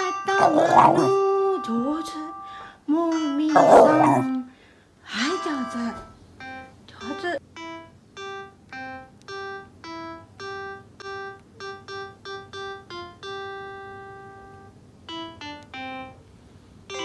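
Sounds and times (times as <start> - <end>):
simple piano-like melody: 5.4 - 16.3.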